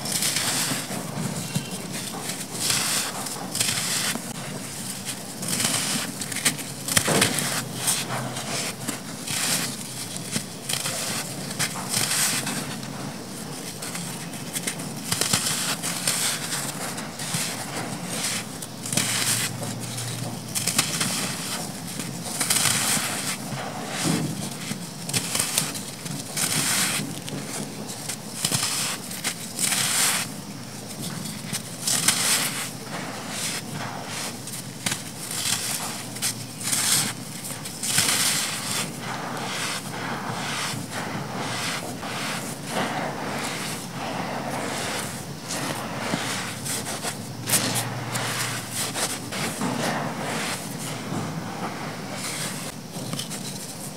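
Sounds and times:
sand pouring through fingers: 0.0s - 52.9s
sand crunching in hands: 27.8s - 52.8s.

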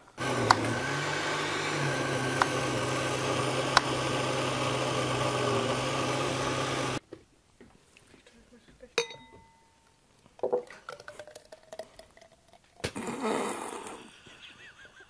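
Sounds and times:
blender motor running: 0.1s - 7.0s.

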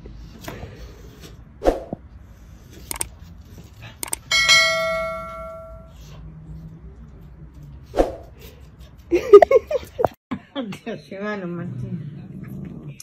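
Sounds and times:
bright bell ding: 4.3s - 6.0s.

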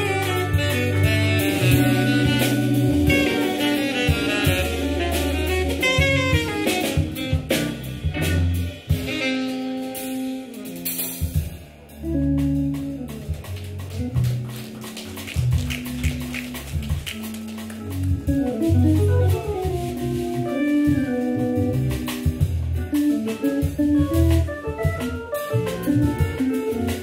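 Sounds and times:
alto saxophone lead: 0.0s - 14.6s, 17.8s - 27.0s
drum kit: 0.0s - 27.0s.

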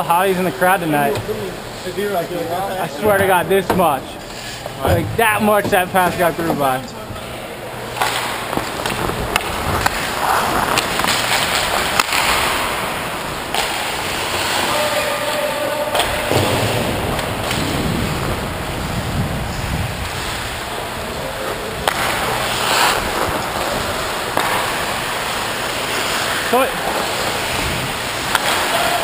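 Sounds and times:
skate blades scraping ice: 8.0s - 12.9s, 13.5s - 15.2s, 21.8s - 29.0s
wind on microphone: 17.0s - 20.6s.

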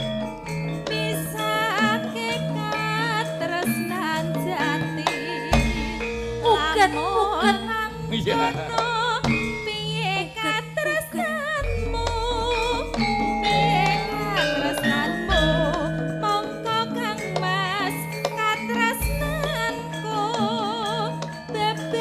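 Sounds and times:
metallophones playing: 0.0s - 22.0s
woman singing ornamented vocal: 0.0s - 22.0s
deep gong: 11.6s - 16.1s.

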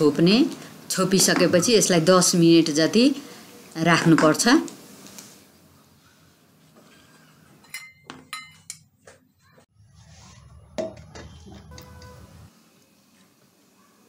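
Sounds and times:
metal dishware clinking: 7.6s - 8.9s
metal plate knocking on bowl: 10.8s - 12.1s.

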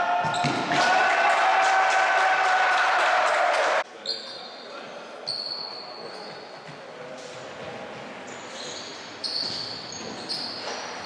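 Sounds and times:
sports hall background noise: 0.0s - 11.0s
sneakers squeaking on court floor: 4.0s - 11.0s.

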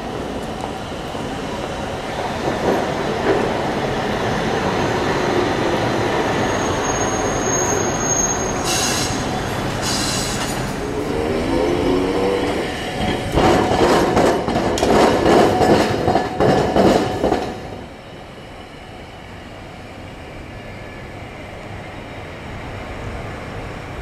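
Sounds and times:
tram running noise: 0.0s - 24.0s
tram wheels clattering over crossing: 8.6s - 17.9s.

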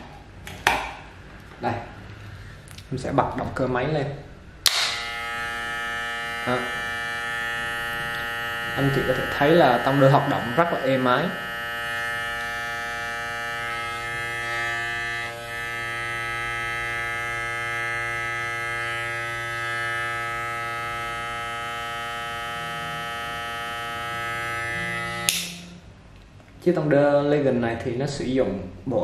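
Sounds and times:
hair clipper buzzing: 4.6s - 25.8s.

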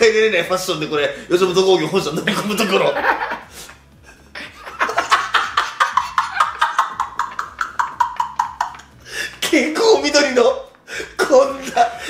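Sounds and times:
men laughing hard: 2.3s - 9.4s.

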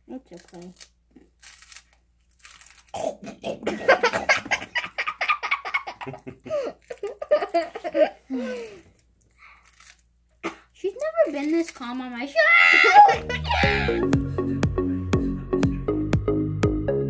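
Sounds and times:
crunchy snack being chewed: 0.3s - 3.3s, 8.6s - 10.1s
children laughing: 3.8s - 8.8s, 12.5s - 14.0s.

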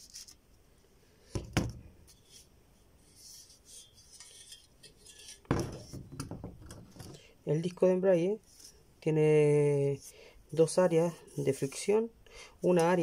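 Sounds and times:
faint rubbing: 2.0s - 6.1s, 7.1s - 13.0s.

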